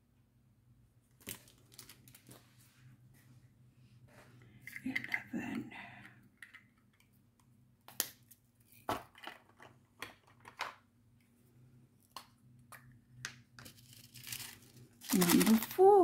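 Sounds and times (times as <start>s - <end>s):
plastic bags crinkling: 1.2s - 2.4s, 13.8s - 16.0s.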